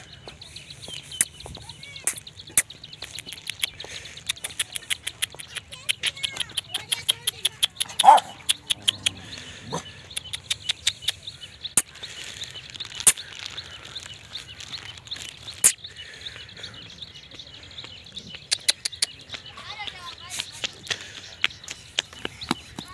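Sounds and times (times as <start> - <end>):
birds chirping: 0.0 - 22.9
sharp clicks: 2.0 - 9.2, 10.1 - 11.2
dog yelping: 7.9 - 8.5
small dog barking: 8.0 - 8.4.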